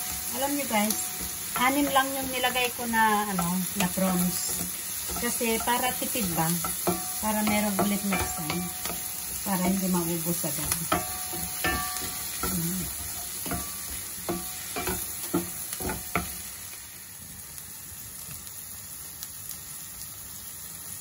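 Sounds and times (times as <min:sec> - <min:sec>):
spatula knocking and scraping pan: 0:00.0 - 0:16.5
food sizzling in a pan: 0:00.0 - 0:21.0.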